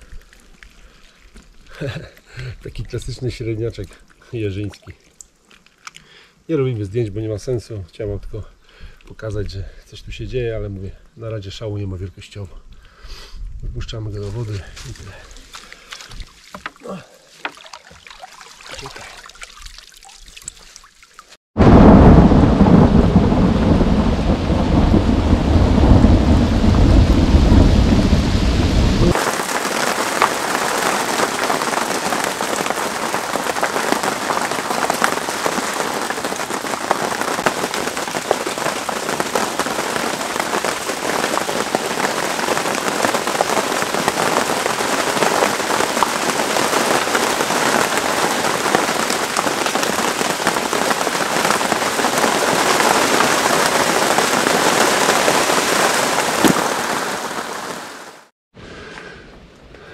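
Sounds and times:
heavy rain falling on water: 0.0s - 5.0s, 14.2s - 58.3s
rain drop ticks: 0.0s - 6.2s
thunder rumbling: 21.6s - 57.9s.

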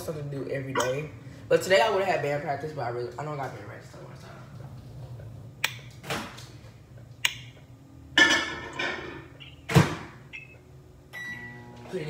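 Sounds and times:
short beep: 10.4s - 11.7s.

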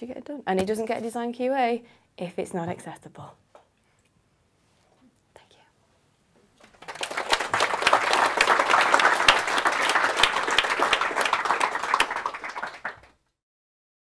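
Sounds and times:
audience applauding: 6.6s - 13.2s.

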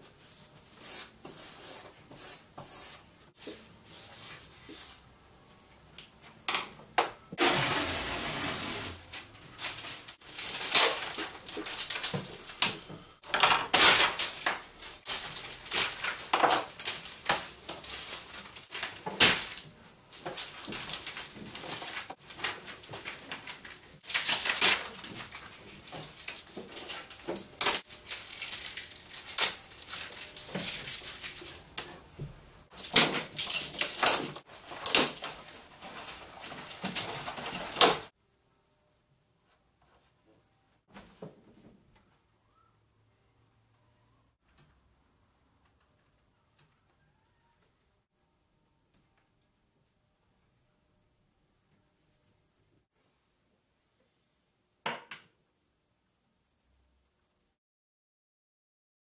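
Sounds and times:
tape pulled off a roll: 7.4s - 9.8s
paper rustling: 7.4s - 12.6s, 13.5s - 31.9s.

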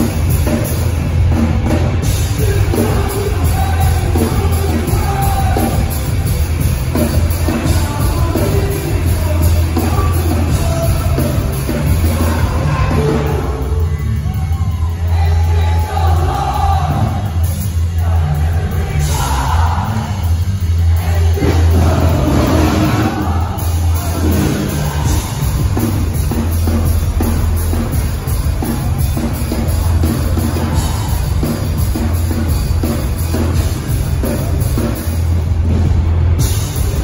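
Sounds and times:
punk band playing loud: 0.0s - 37.0s
voices singing: 2.1s - 27.9s.

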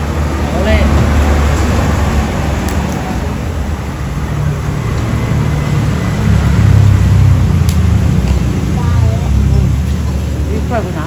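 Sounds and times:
road noise: 0.0s - 11.0s
vehicle engine rumbling: 0.0s - 11.0s.

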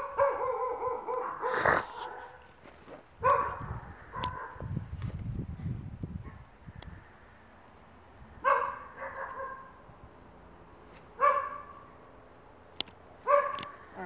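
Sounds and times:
dog barking: 0.0s - 2.4s, 3.2s - 4.6s, 8.4s - 9.7s, 11.2s - 11.8s, 13.2s - 13.7s.

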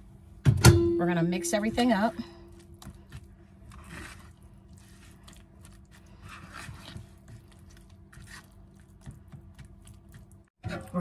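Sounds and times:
spoon stirring thick oatmeal: 2.6s - 11.0s.

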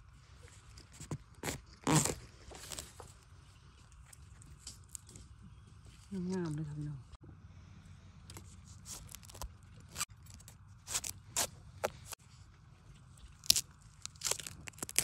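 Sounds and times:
metal blade digging into soil: 8.8s - 12.2s.

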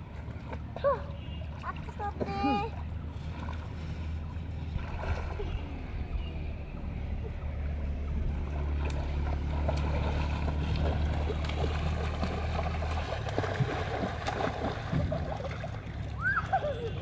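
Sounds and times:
water splashing and sloshing: 0.0s - 17.0s
low drone: 2.7s - 17.0s.

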